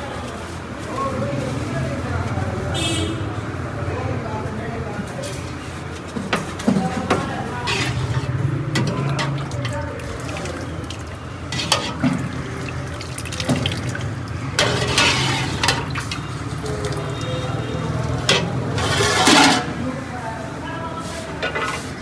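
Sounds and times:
ladle splashing thick curry: 7.6 - 19.7
ladle clinking against pot: 11.5 - 12.3.

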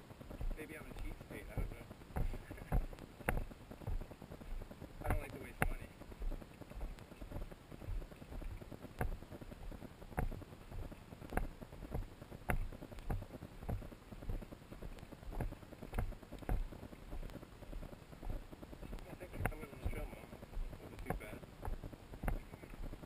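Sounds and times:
low rumble of camera jostling: 0.0 - 23.0
footsteps on gravel: 0.3 - 23.0.

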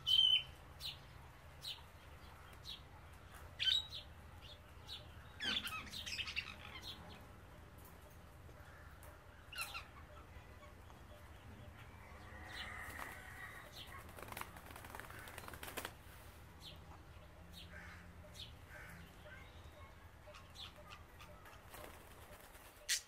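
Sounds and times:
faint bird chirps: 16.7 - 23.0.

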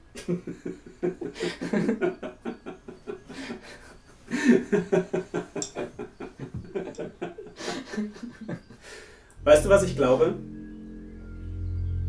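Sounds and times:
man laughing heartily: 0.2 - 8.9.

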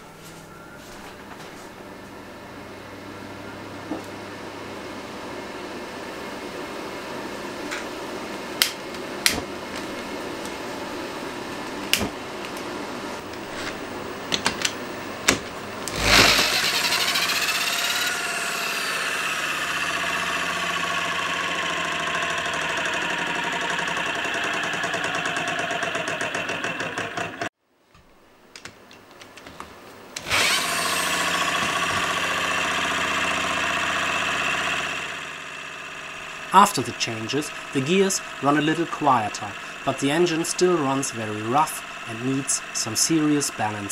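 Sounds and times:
stirling engine running: 1.8 - 27.5, 30.2 - 43.9
igniter clicks: 8.6 - 10.6
gear whine: 8.6 - 27.5, 30.2 - 43.9.

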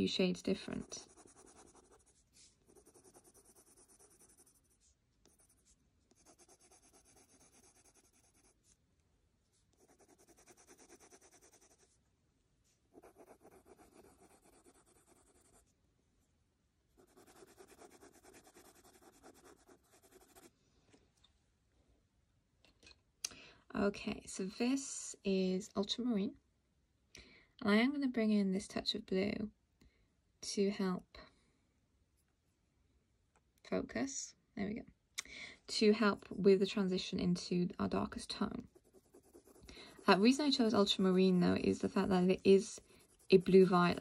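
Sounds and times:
pencil scratching on paper: 0.5 - 8.8, 9.7 - 12.0, 12.9 - 15.7, 17.0 - 20.5, 38.6 - 44.0.

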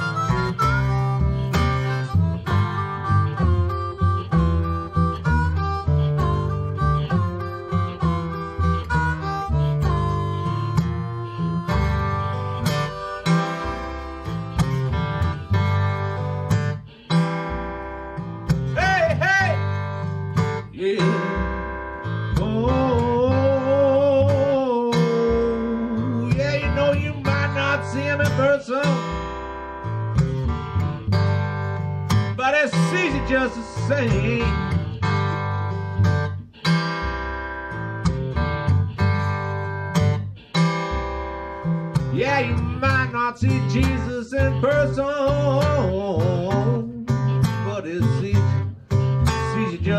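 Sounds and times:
wavering lead note: 0.0 - 31.2
acoustic guitar: 0.0 - 49.9
plucked washtub bass: 0.0 - 49.9.

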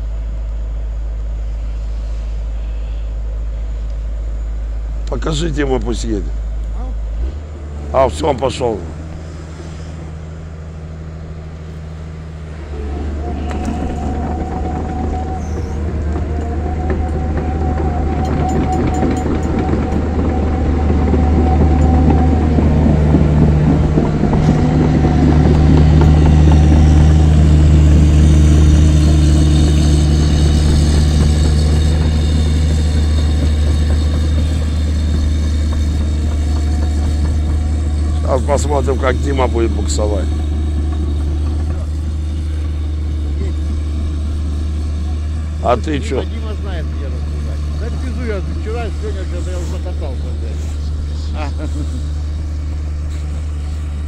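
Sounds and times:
excavator diesel engine working: 0.0 - 54.0
high squeal: 12.1 - 54.0.

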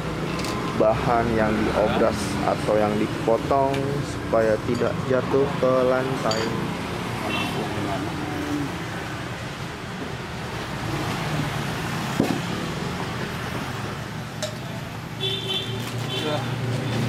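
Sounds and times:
steady background noise: 0.0 - 17.0.

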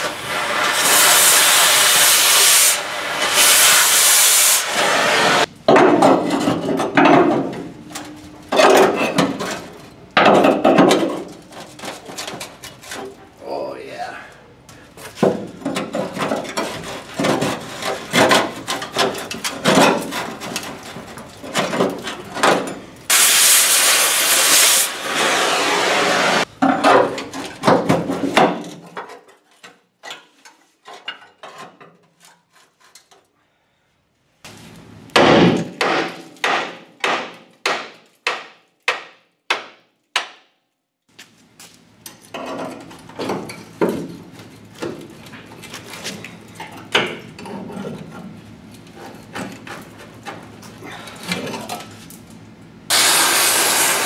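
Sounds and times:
loud steady hiss: 0.0 - 5.5, 23.1 - 26.4, 52.9 - 54.0
hammer striking steel: 35.2 - 40.4.

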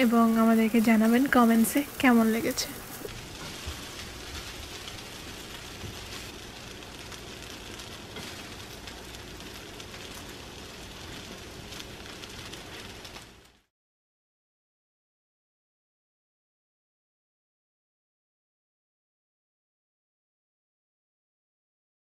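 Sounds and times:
rice sizzling in a hot pan: 0.0 - 13.7
spatula scraping a pan: 2.5 - 6.4, 8.1 - 8.7.

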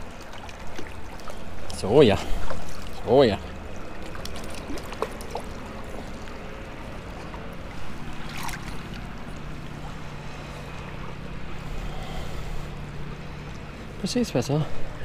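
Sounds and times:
stream water running: 0.0 - 15.0
water splash: 3.8 - 6.5, 7.1 - 9.8.

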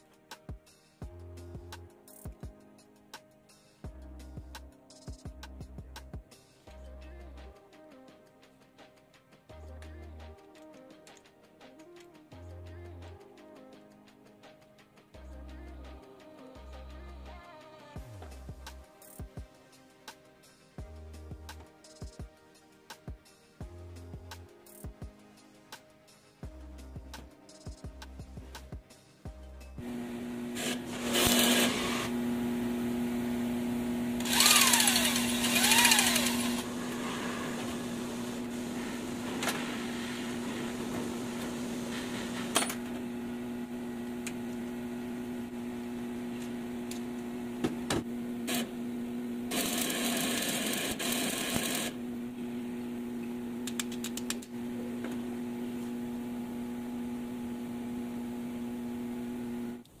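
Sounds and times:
power tool whining: 29.8 - 59.8
steady electric hum: 29.8 - 59.9
clicks: 53.6 - 55.2.

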